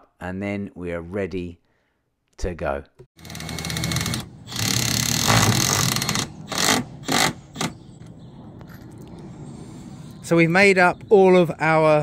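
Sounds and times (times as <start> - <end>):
cordless driver driving screws: 3.2 - 7.8.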